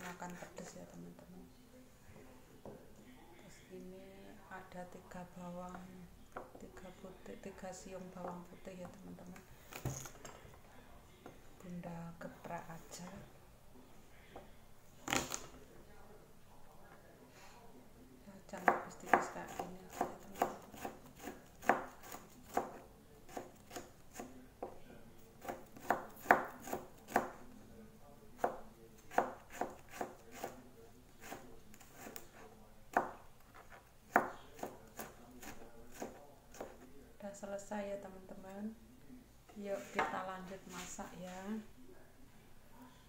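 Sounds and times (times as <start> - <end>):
knife chopping on cutting board: 18.6 - 24.8, 25.4 - 27.4, 28.4 - 30.6, 31.2 - 32.2, 32.9 - 33.2, 34.1 - 36.8.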